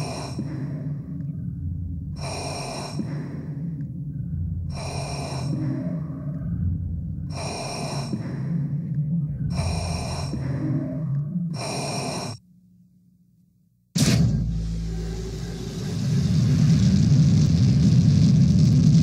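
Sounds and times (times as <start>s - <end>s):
loud breaths: 0.0s - 12.4s
low pulsing drone: 0.0s - 12.4s, 14.0s - 19.0s
sudden boom: 14.0s - 19.0s.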